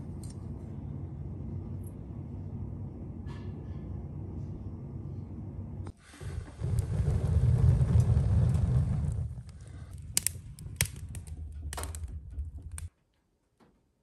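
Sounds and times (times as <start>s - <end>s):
wood fire rumbling and hissing: 0.0s - 13.4s
fire crackling and popping: 6.0s - 13.0s.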